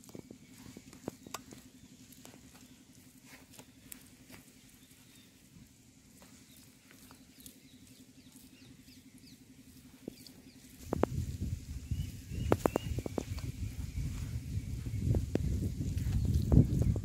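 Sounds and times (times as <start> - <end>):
low steady hum: 0.0 - 17.0
faint high chirps: 11.8 - 15.2.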